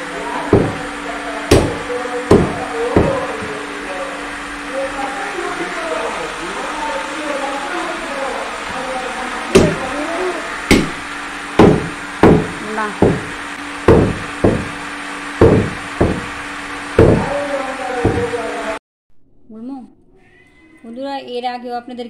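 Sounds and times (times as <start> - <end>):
cleaver chopping meat on wood: 0.5 - 0.9, 1.5 - 3.4, 9.5 - 9.8, 10.7 - 11.0, 11.6 - 14.8, 15.4 - 16.4, 17.0 - 17.3, 18.0 - 18.3.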